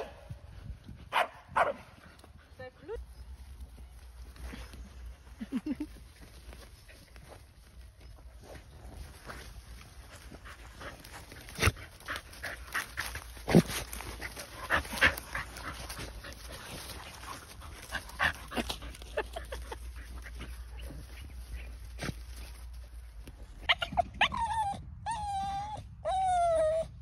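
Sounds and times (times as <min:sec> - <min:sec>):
dogs rustling in dry leaves: 0:02.5 - 0:23.7
dogs sniffing: 0:06.4 - 0:23.9.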